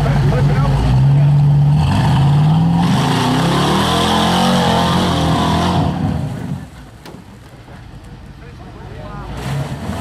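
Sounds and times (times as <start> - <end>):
engine revving hard: 0.2 - 6.6, 9.3 - 10.0.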